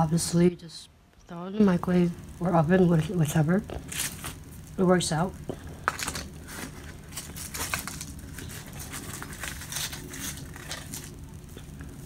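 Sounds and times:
flaky pastry crust crackling: 2.3 - 12.0
foil paper wrapper crinkling: 2.9 - 12.0.

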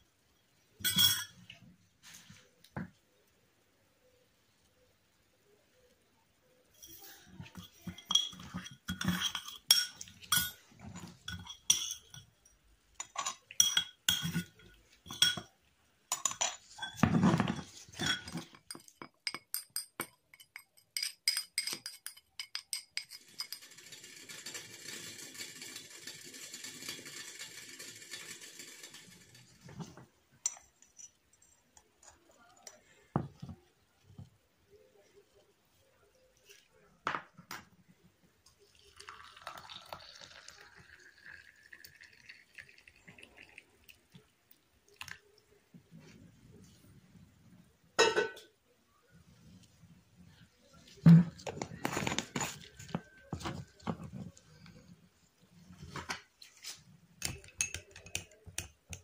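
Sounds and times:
spoon clinking against bowl: 0.8 - 1.5, 6.8 - 15.5, 16.1 - 17.0, 18.0 - 23.7, 57.2 - 59.0
seeds pouring into glass jar: 38.7 - 43.6.

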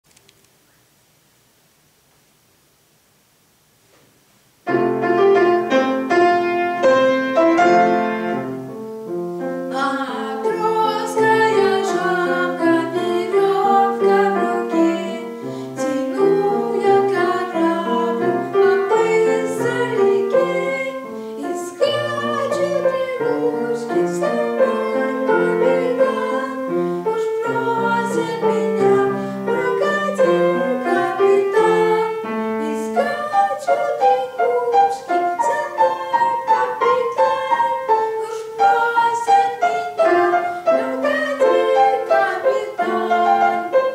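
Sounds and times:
grand piano playing: 4.7 - 43.9.

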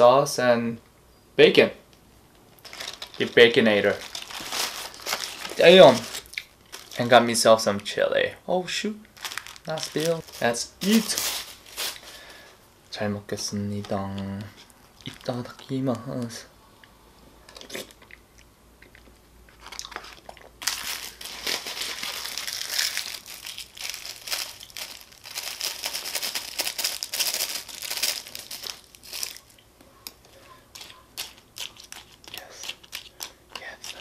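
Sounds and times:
plastic packet crinkling and tearing: 2.6 - 7.2, 9.1 - 12.4, 14.8 - 16.4, 19.6 - 29.6, 30.7 - 34.0.

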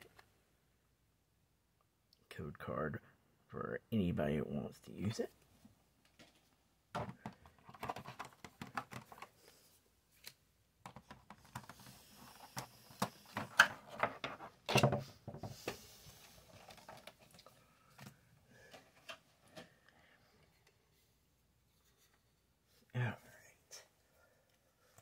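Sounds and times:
cards and plastic tray handled: 7.0 - 9.6, 10.2 - 15.8.

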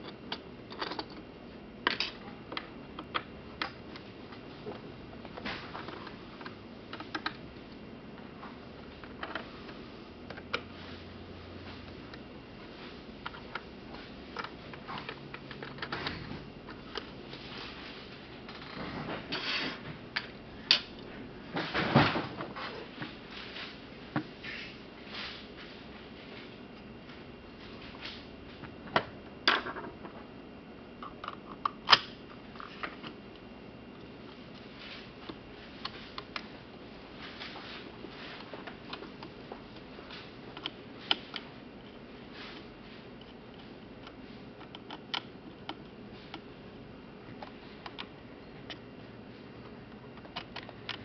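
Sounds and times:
low room hiss: 0.0 - 51.0
fingers clicking on plastic parts: 43.2 - 46.5.

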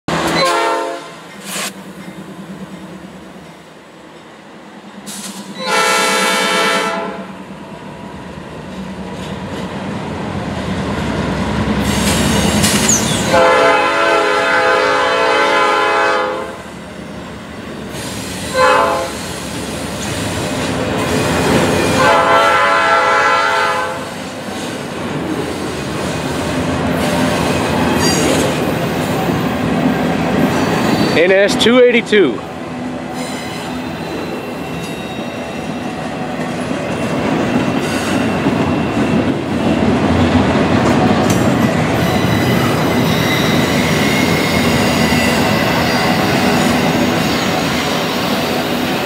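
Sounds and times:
locomotive horn: 0.4 - 1.2, 5.6 - 7.3, 13.2 - 16.6, 18.5 - 19.2, 21.9 - 24.1
train wheels clacking over rail joints: 36.4 - 48.1.

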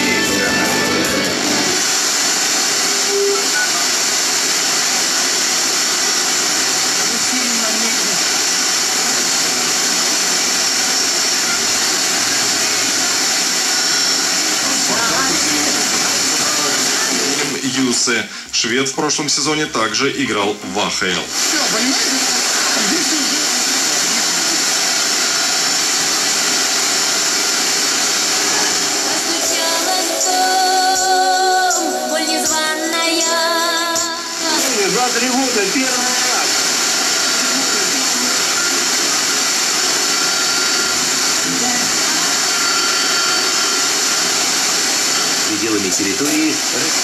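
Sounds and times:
radio hiss between stations: 0.0 - 47.0
faint broadcast voice: 14.6 - 24.6.

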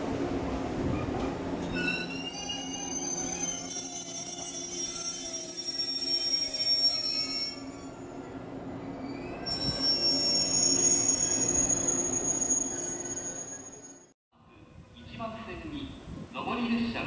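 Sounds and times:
low train hum: 0.0 - 14.1
train brakes squealing: 0.6 - 14.2.

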